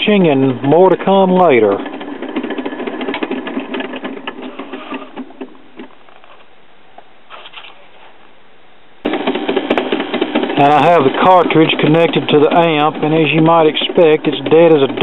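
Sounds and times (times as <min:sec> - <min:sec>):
faint steady noise: 0:04.5 - 0:09.1
loud abrupt noise: 0:09.0 - 0:15.0
turntable mechanism clicking and rattling: 0:11.6 - 0:15.0.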